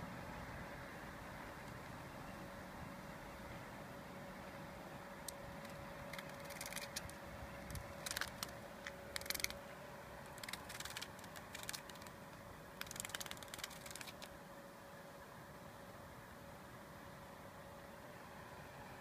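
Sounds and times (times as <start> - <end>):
cicada wings buzzing on concrete: 5.5 - 9.6, 10.2 - 14.3.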